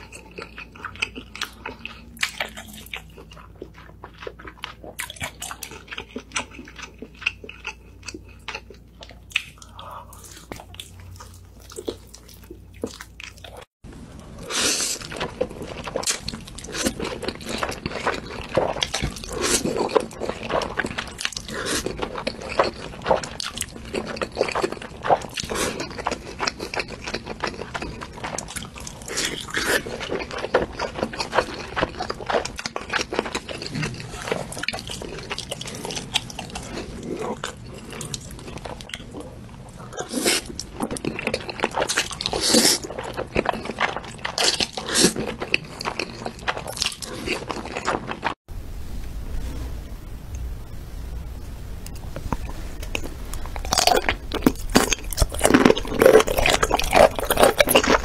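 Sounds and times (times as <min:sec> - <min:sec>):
wet chewing and lip smacking: 0:00.0 - 0:13.7, 0:51.9 - 0:58.0.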